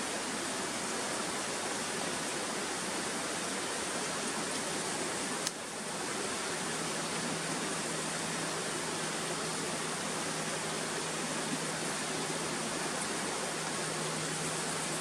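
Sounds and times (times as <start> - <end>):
stream water rushing: 0.0 - 15.0.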